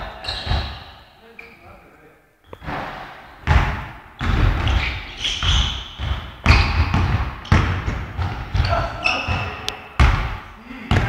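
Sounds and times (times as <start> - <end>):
sneakers squeaking on floor: 0.0 - 1.7, 2.5 - 11.0
basketball dribbling on court: 3.4 - 11.0.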